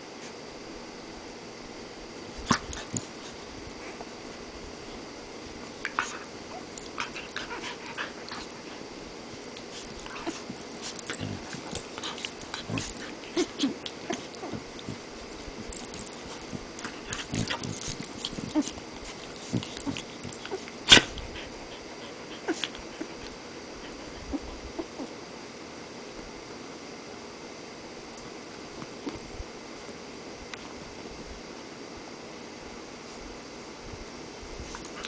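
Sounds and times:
dogs play-biting: 2.3s - 4.2s, 5.4s - 25.2s, 34.7s - 35.0s.

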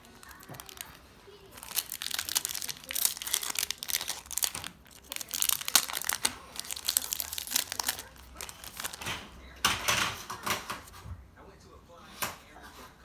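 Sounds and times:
cards rustling: 0.0s - 9.2s
foil wrapper crinkling and tearing: 0.0s - 9.2s.

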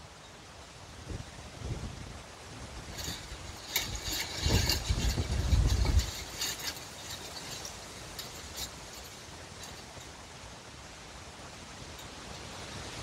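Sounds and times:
leaves rustling: 0.0s - 13.0s
steady rush of wind: 0.0s - 13.0s
wind gust buffeting microphone: 1.1s - 9.4s.

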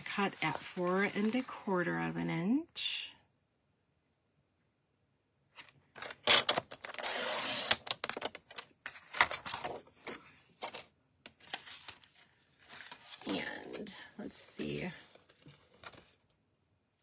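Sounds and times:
paper rustling: 0.0s - 1.7s, 5.6s - 13.5s, 15.0s - 16.3s.

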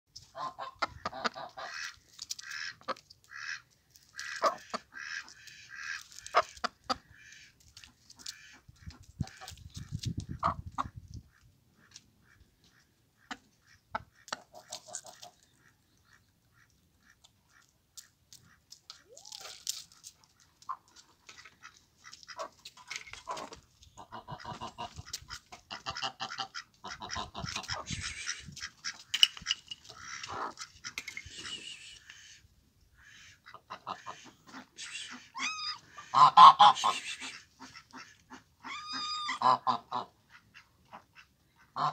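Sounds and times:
chickens squawking and clucking: 0.2s - 3.6s, 20.6s - 29.0s, 29.8s - 41.9s.

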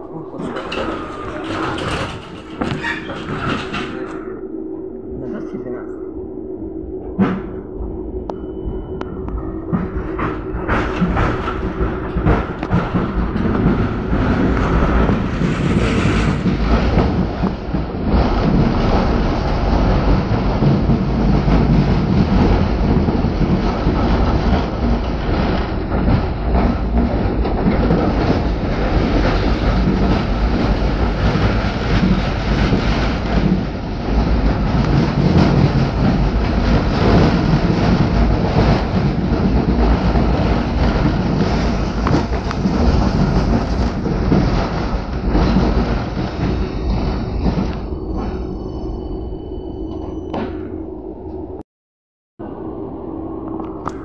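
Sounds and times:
tram wheels on rails: 0.0s - 4.5s, 6.8s - 51.6s.

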